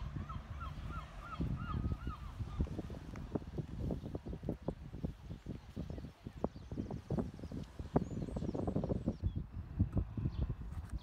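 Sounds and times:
gull calling: 0.0s - 2.8s.

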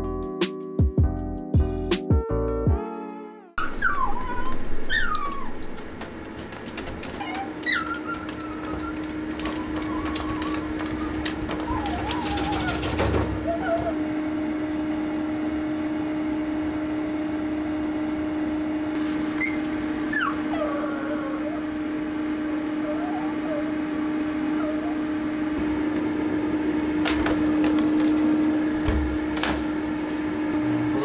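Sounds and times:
dog whimpering: 3.6s - 5.8s, 6.7s - 14.0s, 19.0s - 22.0s, 22.6s - 25.5s.

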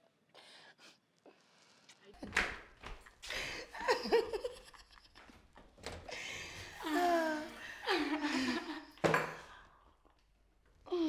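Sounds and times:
young women laughing: 3.2s - 5.4s, 6.1s - 9.0s.

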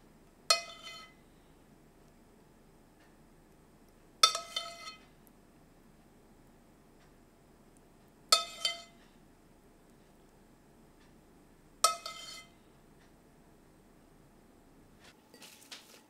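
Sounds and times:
spoon clinking on ceramic plate: 4.2s - 5.0s, 8.3s - 9.0s, 11.8s - 12.6s.

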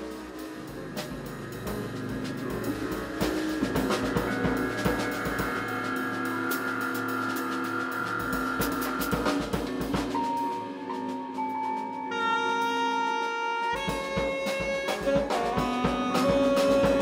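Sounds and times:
drum kit with snare and cymbals: 0.0s - 17.0s
jazz fusion band playing: 0.0s - 17.0s
saxophone: 0.0s - 17.0s.

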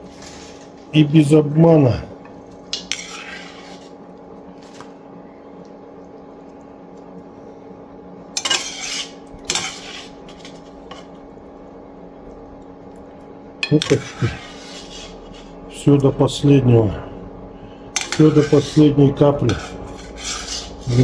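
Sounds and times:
faint steady hum: 0.0s - 21.0s
metal skimmer scraping a pot: 2.7s - 3.9s, 8.4s - 11.1s, 13.6s - 15.6s, 18.0s - 21.0s.

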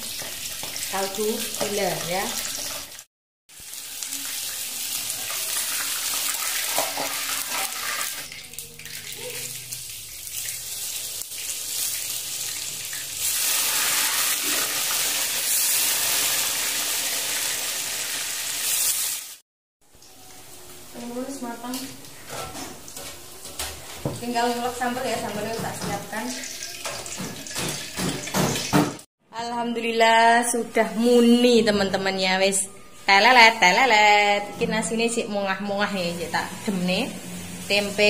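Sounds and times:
oil sizzling in a wok: 0.0s - 23.4s, 35.7s - 38.0s.

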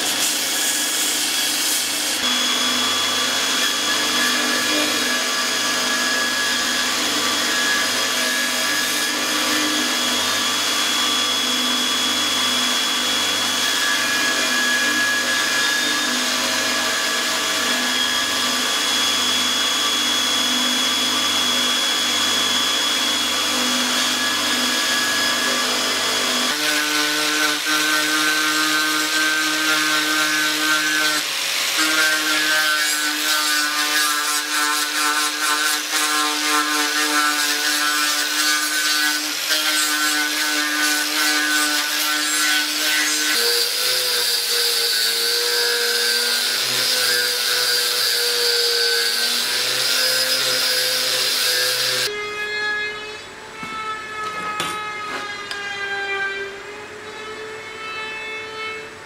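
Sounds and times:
angle grinder grinding metal: 0.0s - 52.1s
belt grinder on blade: 20.2s - 52.1s.

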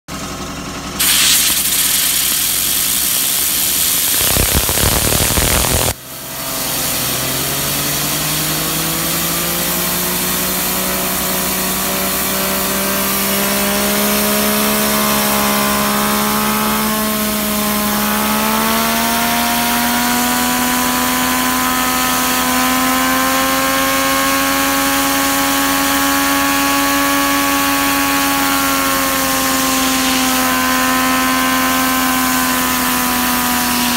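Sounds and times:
compressed air hissing: 1.0s - 8.9s.

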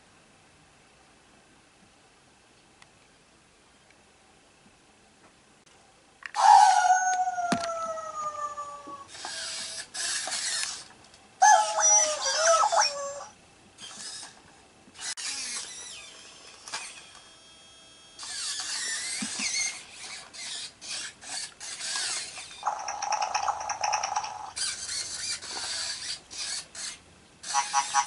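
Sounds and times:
toy robot gear motors whirring: 9.1s - 14.4s, 15.0s - 28.0s.

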